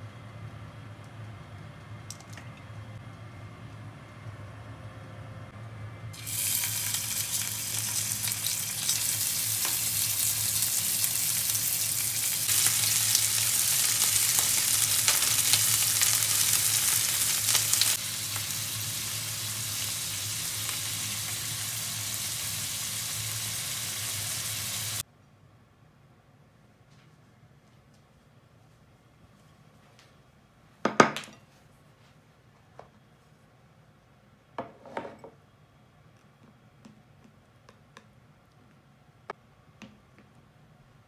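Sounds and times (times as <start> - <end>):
steak sizzling in hot oil: 6.2 - 25.0.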